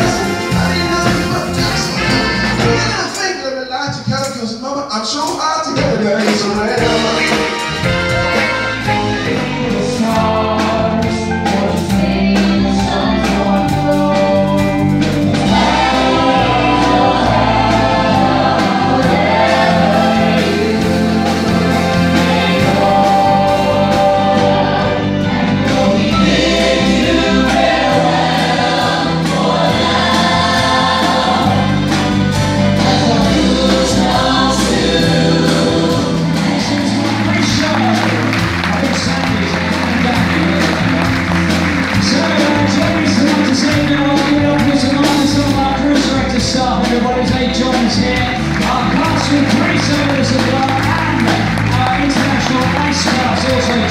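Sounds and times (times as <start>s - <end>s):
group singing in harmony: 0.0s - 3.2s, 6.2s - 46.2s
live band playing: 0.0s - 53.9s.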